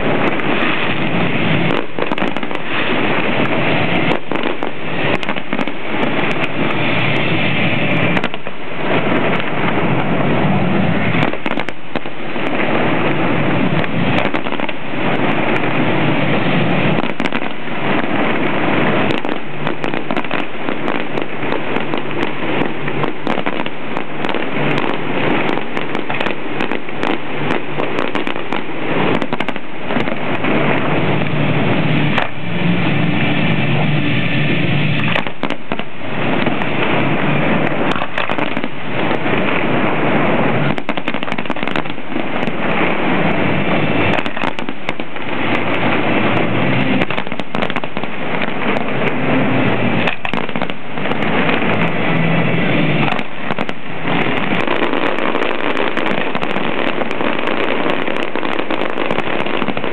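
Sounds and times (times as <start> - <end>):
fireworks bursting and crackling: 0.0 - 59.9.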